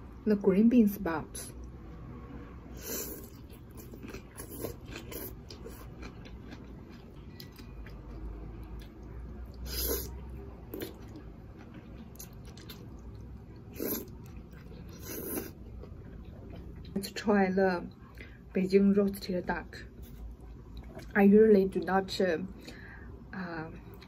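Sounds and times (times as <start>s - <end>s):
quiet chewing: 2.8s - 17.1s, 19.9s - 21.2s
person slurping noodles: 9.6s - 11.0s, 13.7s - 14.1s, 14.9s - 15.6s.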